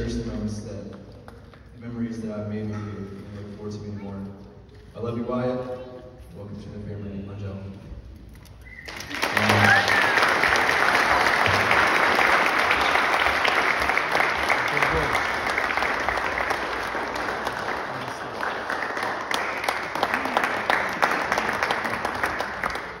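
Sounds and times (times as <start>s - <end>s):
audience clapping: 8.4s - 23.0s.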